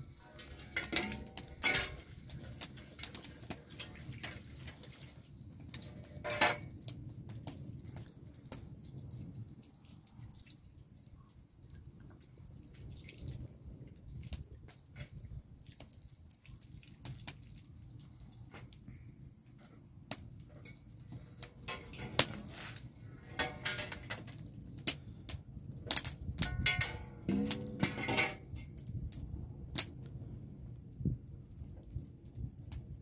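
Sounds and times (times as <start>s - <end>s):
water dripping and trickling: 0.0s - 33.0s
splashing on metal tray: 0.2s - 6.7s, 20.5s - 24.3s, 26.4s - 28.6s.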